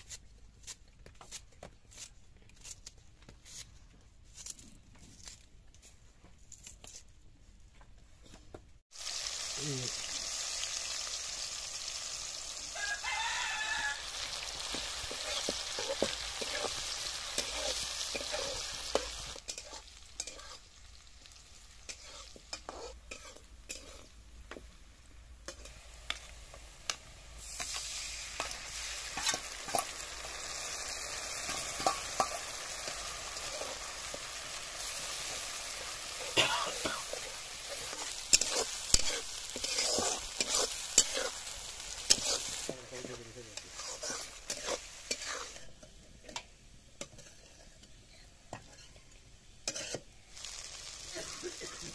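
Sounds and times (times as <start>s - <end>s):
onions sizzling in hot oil: 8.9s - 51.9s
rooster crowing: 12.6s - 14.4s
metal spatula scraping pan: 13.2s - 20.7s, 21.8s - 24.2s, 28.4s - 42.7s, 43.6s - 48.0s, 48.6s - 50.1s.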